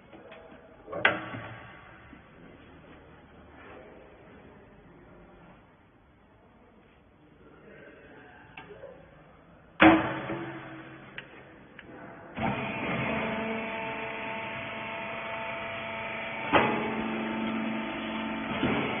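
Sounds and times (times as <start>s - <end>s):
baler motor and pump humming: 12.3s - 19.0s.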